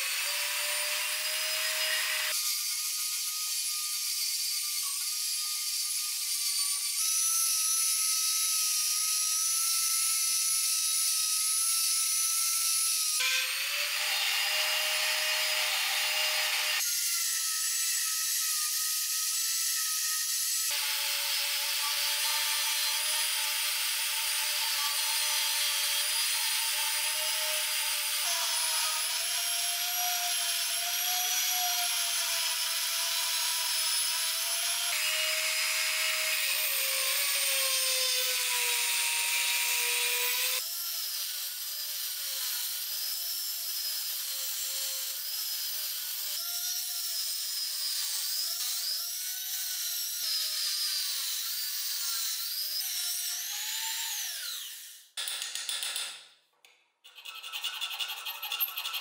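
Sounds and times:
rotary tool grinding metal: 0.0 - 55.9, 57.0 - 59.0.

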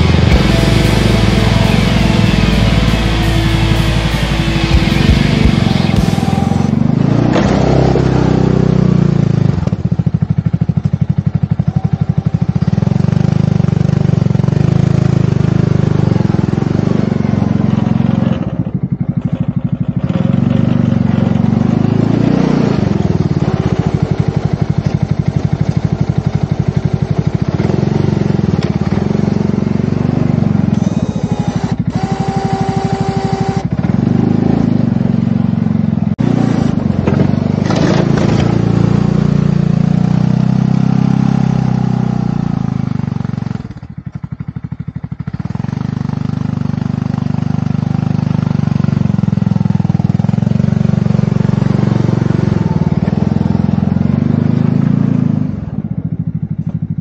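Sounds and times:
short steady tone: 0.0 - 7.0, 30.7 - 33.7
engine running with even pulsing: 0.0 - 57.0.

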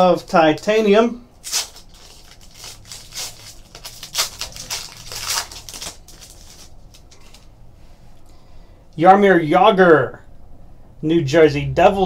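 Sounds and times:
foil wrapper crinkling: 1.4 - 7.5.

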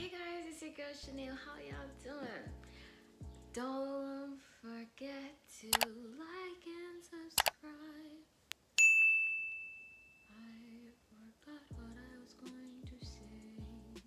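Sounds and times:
mouse clicks: 7.4 - 7.6
bell ding: 8.8 - 10.4.

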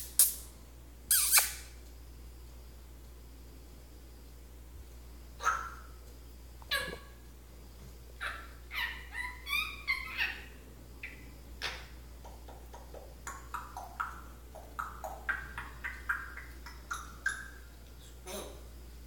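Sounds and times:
parrot whistling and chirping: 8.2 - 11.9, 12.5 - 17.7.

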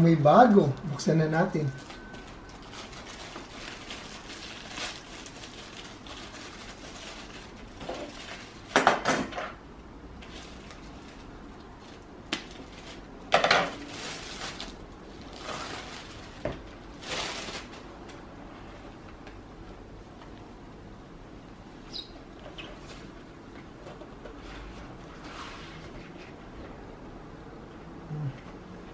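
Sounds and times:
plastic wrapping crinkling and tearing: 1.6 - 9.0, 10.2 - 18.0.

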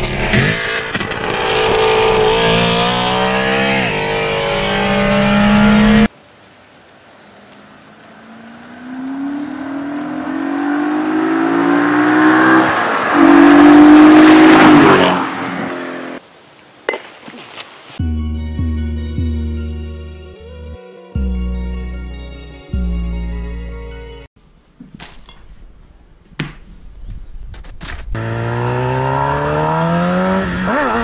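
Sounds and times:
car engine at full throttle: 0.0 - 6.1, 8.8 - 16.2, 28.2 - 31.0.

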